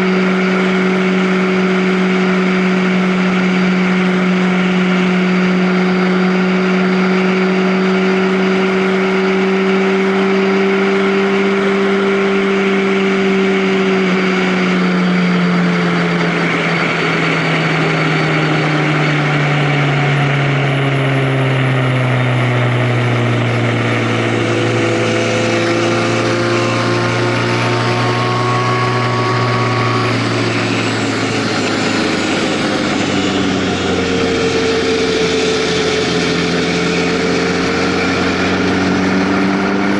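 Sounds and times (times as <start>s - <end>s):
vehicle engine running: 0.0s - 39.9s
steady rush of noise: 13.9s - 39.9s.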